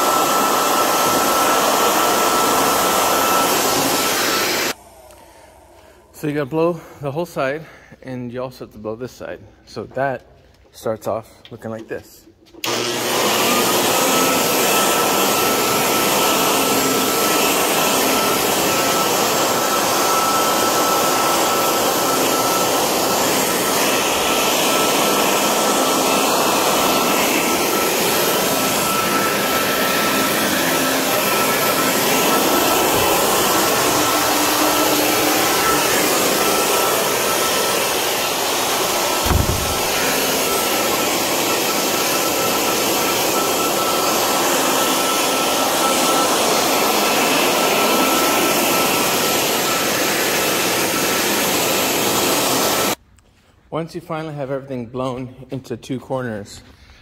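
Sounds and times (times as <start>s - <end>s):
leaf blower running: 0.0s - 7.2s, 12.6s - 53.0s
low thump: 39.2s - 40.0s.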